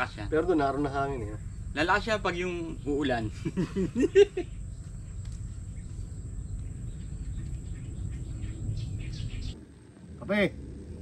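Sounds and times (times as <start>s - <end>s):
faint bird chirps: 1.1s - 9.6s
wind rumble on microphone: 4.5s - 11.0s.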